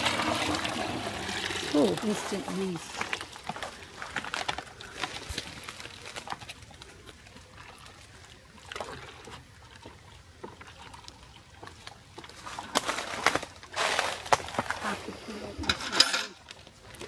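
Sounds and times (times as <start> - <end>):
bucket clattering: 0.0 - 6.5, 12.3 - 16.6
liquid trickling into bucket: 0.0 - 14.6.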